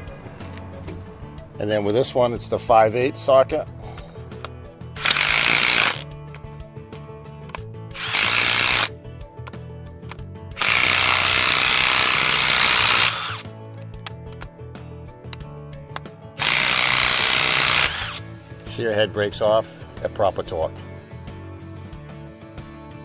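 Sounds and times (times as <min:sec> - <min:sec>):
impact driver hammering bolts: 0:05.0 - 0:06.0, 0:08.0 - 0:08.9, 0:10.6 - 0:13.4, 0:16.4 - 0:18.2.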